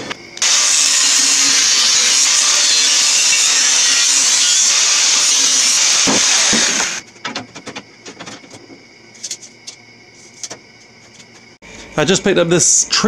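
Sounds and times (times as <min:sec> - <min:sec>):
angle grinder cutting steel: 0:00.4 - 0:07.0.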